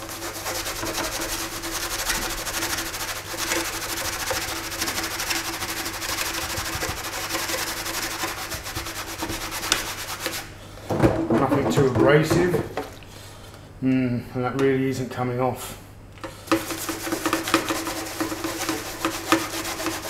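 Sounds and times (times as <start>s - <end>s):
brush scrubbing plastic in water: 0.0s - 10.6s, 16.4s - 20.0s.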